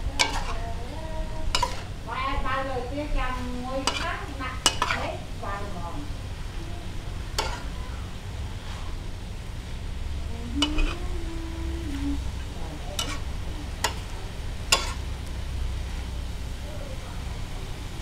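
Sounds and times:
metal spatula scraping: 0.0s - 2.0s, 3.2s - 5.2s, 7.3s - 7.8s, 10.6s - 11.1s, 12.8s - 15.1s
food sizzling in a wok: 0.0s - 18.0s.

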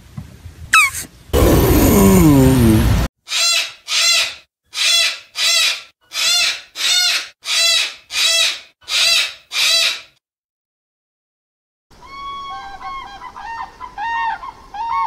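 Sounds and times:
cockatoo screeching: 0.8s - 2.4s, 3.3s - 10.1s.

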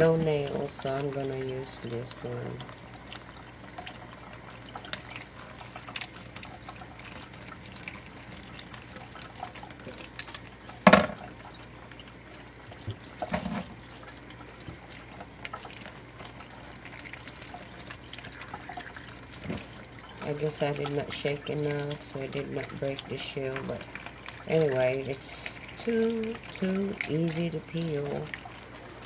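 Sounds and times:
tap water running: 0.0s - 29.0s
small clatter: 10.8s - 11.3s.

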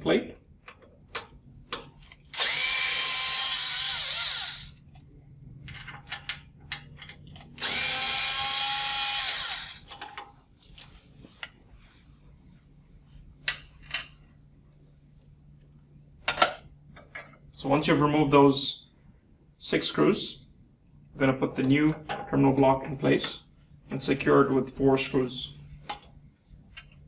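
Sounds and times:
cordless electric screwdriver running: 2.3s - 4.8s, 7.6s - 9.9s.

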